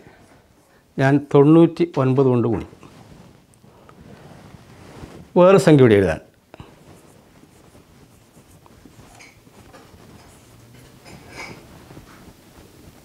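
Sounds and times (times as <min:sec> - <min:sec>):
marker pen writing on whiteboard: 0:07.0 - 0:12.3.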